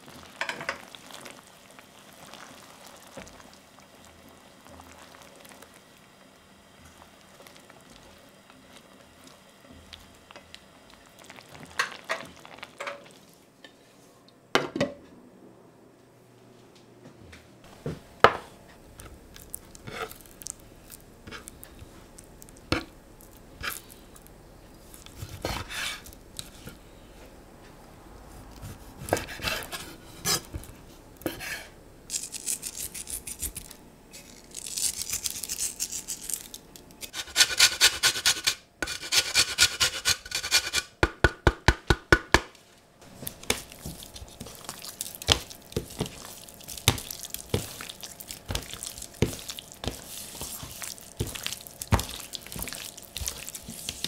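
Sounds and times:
salt flakes sprinkled: 0:32.1 - 0:36.7, 0:43.1 - 0:54.0
lemon grating: 0:32.1 - 0:40.9.

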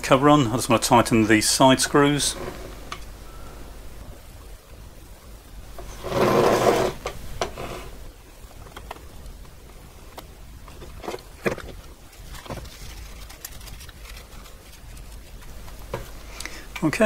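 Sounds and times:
metal scrape and rustle: 0:02.0 - 0:03.1, 0:05.8 - 0:08.1.

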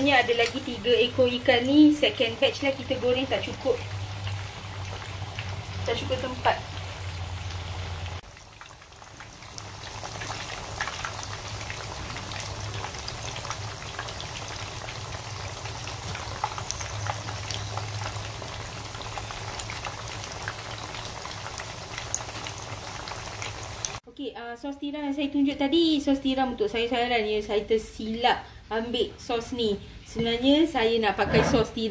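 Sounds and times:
fish deep-frying in hot oil: 0:00.0 - 0:24.0.

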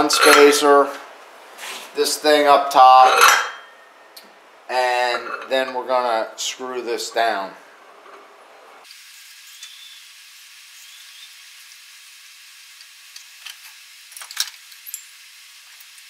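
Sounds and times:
steady faint hiss: 0:00.0 - 0:08.9.

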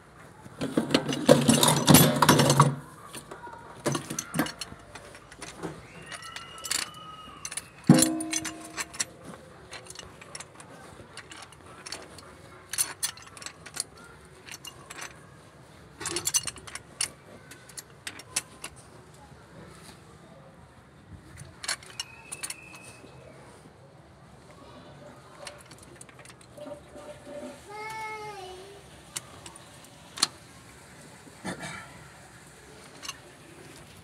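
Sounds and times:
tools clattering: 0:00.6 - 0:18.9, 0:21.4 - 0:23.1, 0:25.3 - 0:27.7, 0:32.8 - 0:34.0
pipe wrench clinking on fitting: 0:03.9 - 0:10.6
sharp metal clank: 0:07.9 - 0:09.1.

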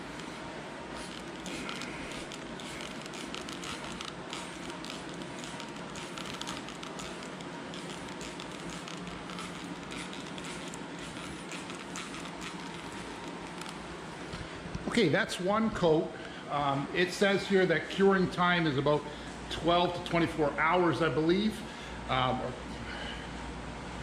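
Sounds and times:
spray bottle hissing sprays: 0:01.0 - 0:13.8.

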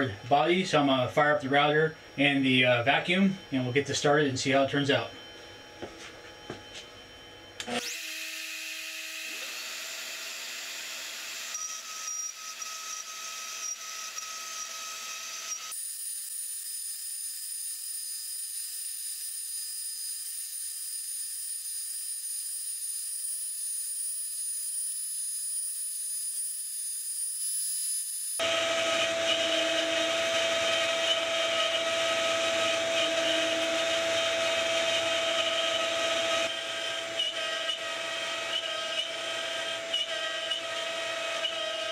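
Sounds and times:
router carving with machine whine: 0:06.4 - 0:41.9
dust vacuum running: 0:28.4 - 0:41.9.

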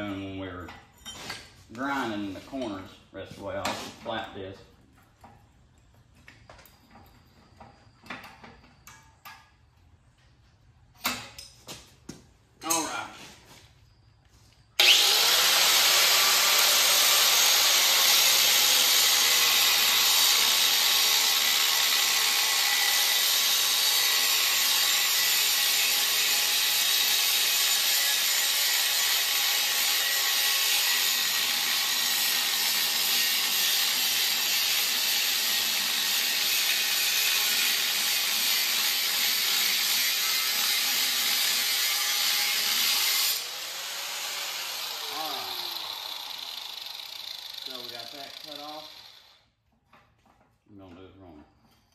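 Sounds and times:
angle grinder grinding steel: 0:14.8 - 0:49.4.

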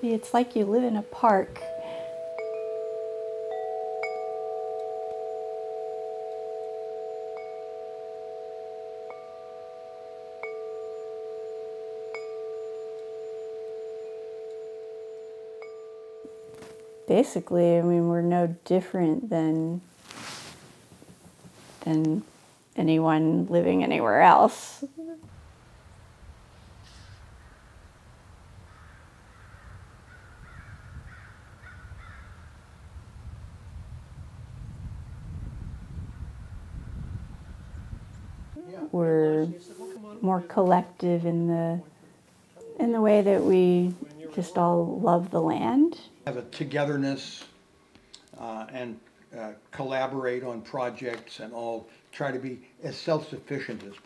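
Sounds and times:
deep metal wind chimes ringing: 0:00.0 - 0:18.4
crow cawing: 0:28.7 - 0:32.5.

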